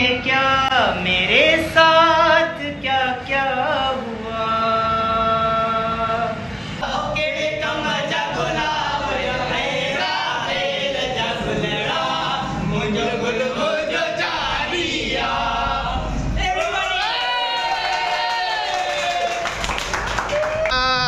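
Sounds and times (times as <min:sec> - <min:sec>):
male voices singing in chorus: 0:00.0 - 0:16.4.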